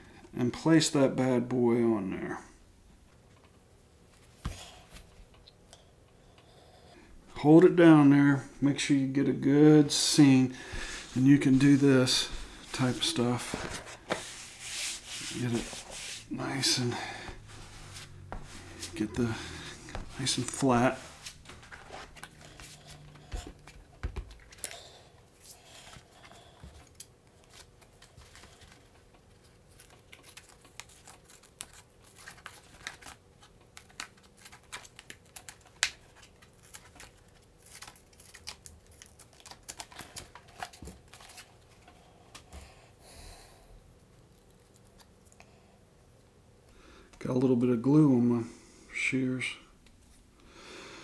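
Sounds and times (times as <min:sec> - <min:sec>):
card knocking and rustling: 0:19.7 - 0:24.8.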